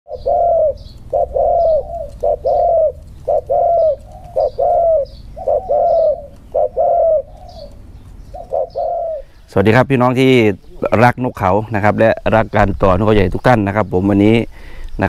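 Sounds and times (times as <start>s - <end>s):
dove cooing: 0.1s - 9.6s.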